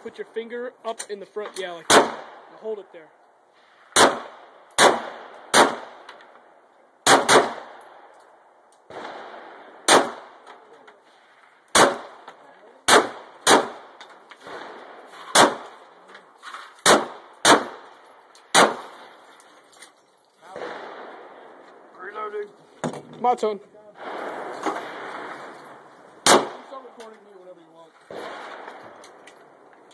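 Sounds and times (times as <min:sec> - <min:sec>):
pistol shots with echo: 0:01.9 - 0:02.6, 0:04.0 - 0:06.1, 0:07.0 - 0:08.1, 0:08.9 - 0:10.5, 0:11.7 - 0:15.9, 0:16.8 - 0:19.1, 0:24.0 - 0:26.8.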